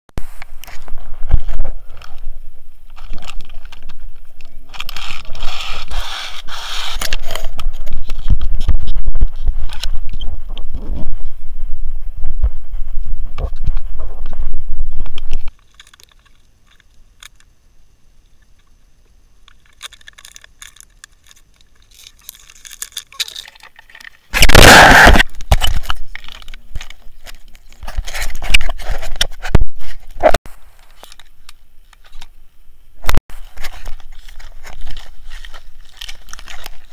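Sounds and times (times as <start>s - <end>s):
gear rustling and clinking: 0.6s - 10.1s, 15.2s - 17.4s, 19.5s - 24.8s, 33.3s - 36.9s
clicks and scrapes: 2.9s - 11.3s, 19.4s - 32.3s, 33.0s - 36.9s
loud rush: 24.4s - 25.2s.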